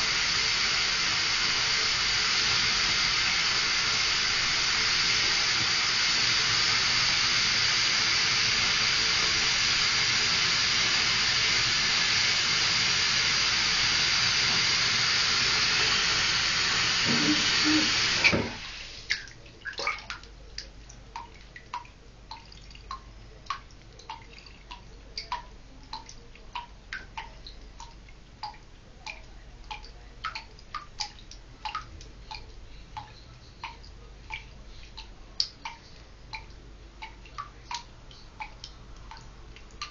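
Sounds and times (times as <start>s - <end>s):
bathtub tap running: 0.0s - 39.9s
drips into bathwater: 0.0s - 39.9s
tap shutting off knock: 16.8s - 18.6s.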